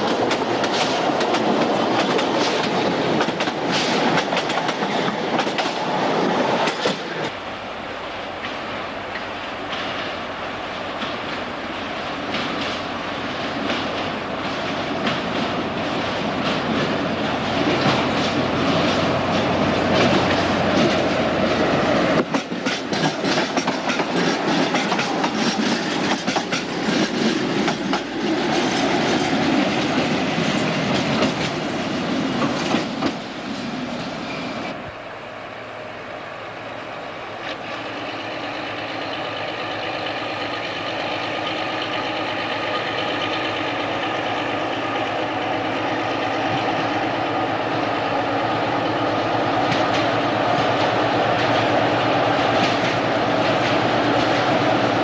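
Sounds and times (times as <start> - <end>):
wheels clicking over rail joints: 0.0 - 7.4, 22.2 - 31.7.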